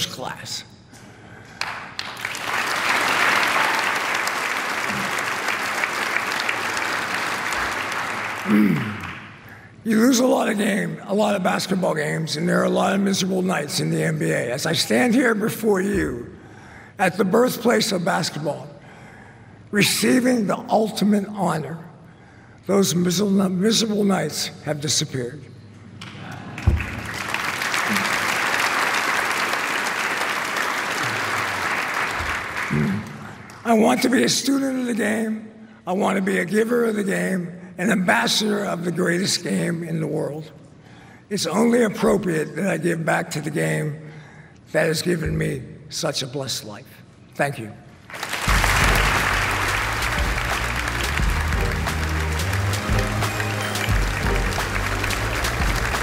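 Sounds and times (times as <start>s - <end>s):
audience applauding: 1.6s - 9.4s, 26.6s - 33.3s, 48.1s - 56.0s.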